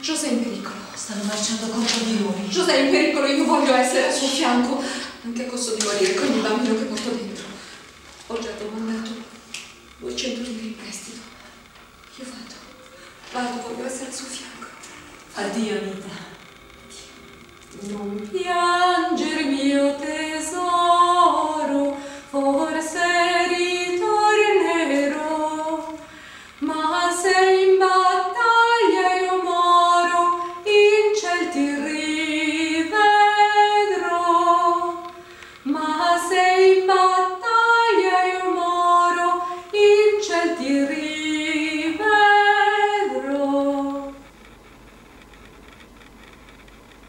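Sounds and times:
woman singing unaccompanied: 0:00.0 - 0:07.6, 0:17.8 - 0:44.3.

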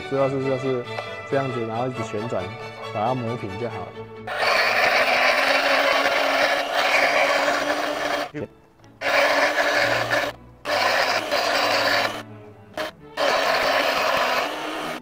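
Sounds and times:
grinding wheel grinding drill bit: 0:04.3 - 0:08.3, 0:09.0 - 0:15.0.

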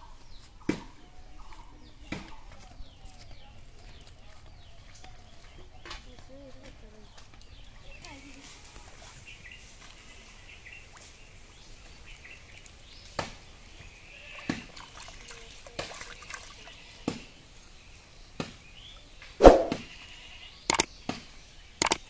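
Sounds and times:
fish splashing in water: 0:08.8 - 0:17.2.

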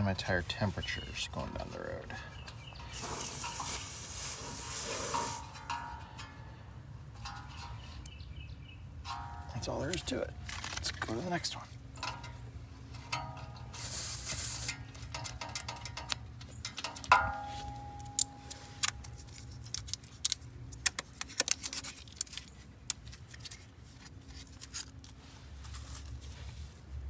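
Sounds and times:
air hissing from tire valve: 0:02.9 - 0:05.6, 0:13.8 - 0:14.8.

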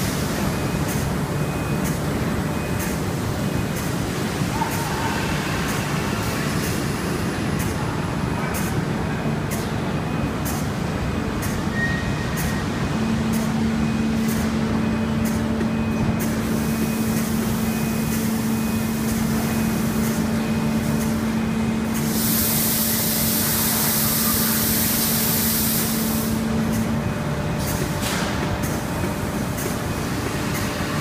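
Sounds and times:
machinery humming: 0:00.0 - 0:31.0
compressed air hissing: 0:22.0 - 0:26.4.

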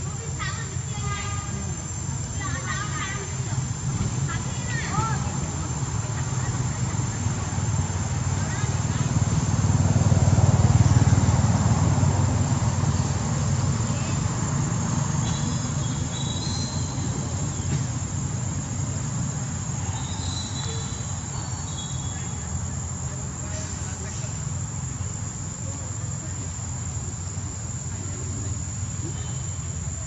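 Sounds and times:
high-pitched insect drone: 0:00.0 - 0:30.0.

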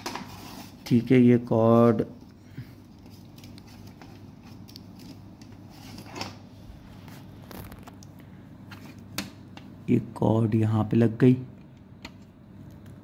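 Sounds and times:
low steady hum: 0:00.0 - 0:13.0
cable clicks and rustles: 0:07.4 - 0:09.7.

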